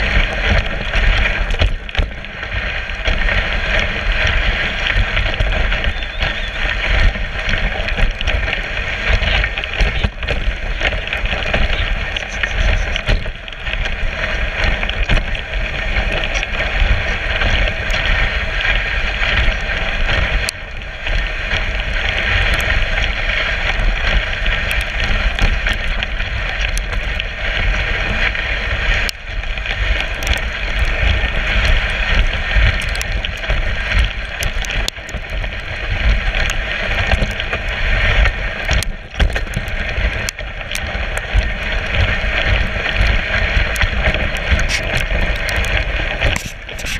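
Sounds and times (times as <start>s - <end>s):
sled runners scraping over snow: 0.0s - 46.9s
wind rumble on microphone: 0.0s - 46.9s.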